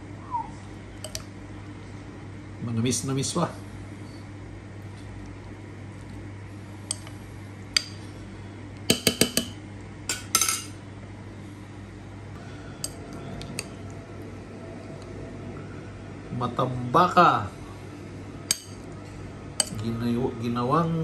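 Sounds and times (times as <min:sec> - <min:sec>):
steady low hum: 0:00.0 - 0:21.0
metal spoon clinking against bowl: 0:01.0 - 0:01.2, 0:18.5 - 0:18.8, 0:19.6 - 0:19.8.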